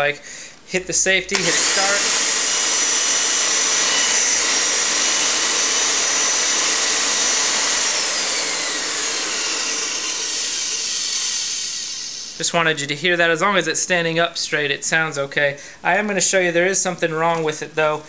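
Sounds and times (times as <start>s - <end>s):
immersion mixer motor whining: 1.3s - 12.4s.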